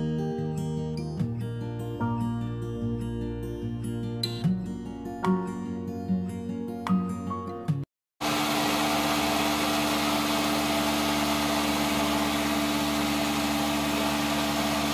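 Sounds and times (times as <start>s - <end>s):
blender motor whirring: 8.2s - 14.9s.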